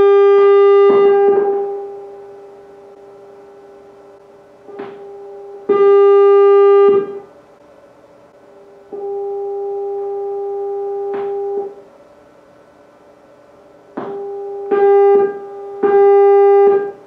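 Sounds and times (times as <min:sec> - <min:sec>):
steady audio tone: 0:00.0 - 0:17.0.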